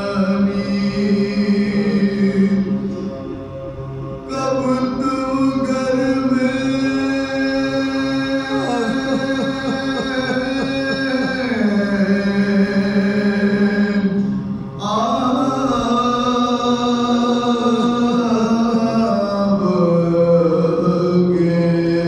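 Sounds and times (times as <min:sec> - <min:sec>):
men chanting in unison: 0:04.3 - 0:14.1.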